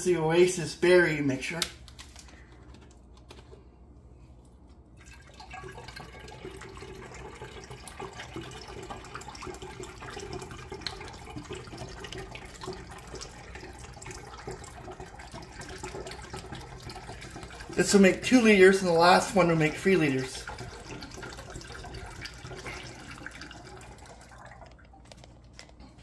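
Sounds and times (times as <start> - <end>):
juice pouring into a glass jug: 4.8 - 25.4.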